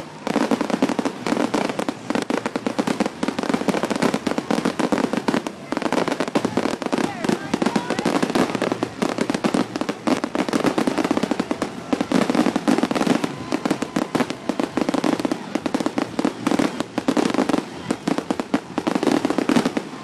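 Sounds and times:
fireworks bangs and crackles: 0.0s - 20.0s.

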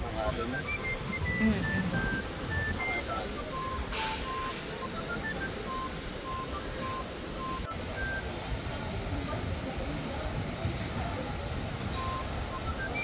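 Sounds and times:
light melody of clean notes: 0.0s - 10.1s.

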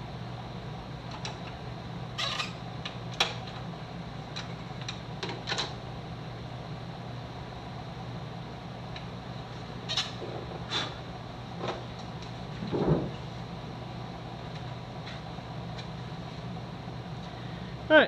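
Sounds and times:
wood knocks and scrapes: 12.6s - 13.2s.

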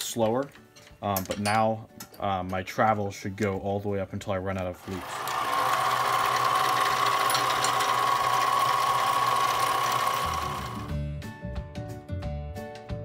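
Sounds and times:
background music: 0.0s - 13.0s
lathe running with high whine: 4.8s - 10.9s.

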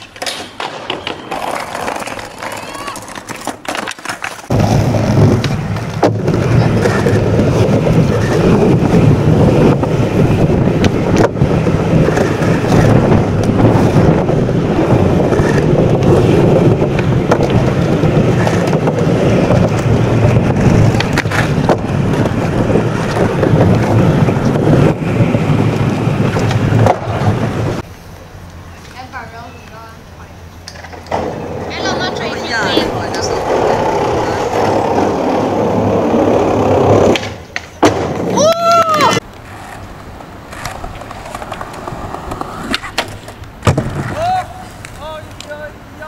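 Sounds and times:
skateboard wheels rumbling: 0.0s - 46.0s.

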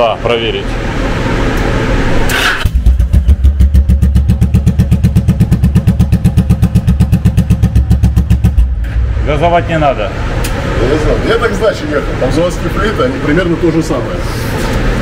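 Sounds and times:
motorcycle engine idling: 2.7s - 8.9s.

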